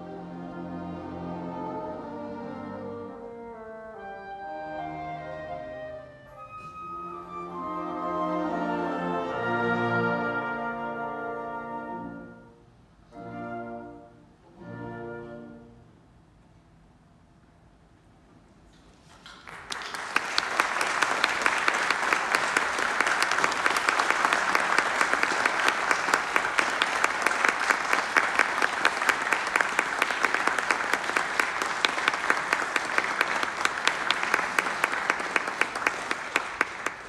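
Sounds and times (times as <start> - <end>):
audience applauding: 19.2 - 37.0.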